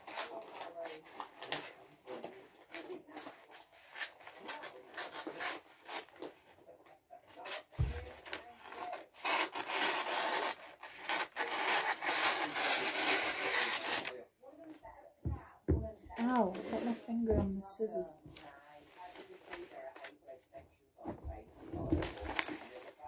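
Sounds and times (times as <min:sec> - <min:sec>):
scissors cutting paper: 0:08.6 - 0:14.1
paper rustling: 0:18.3 - 0:20.2, 0:21.0 - 0:23.0.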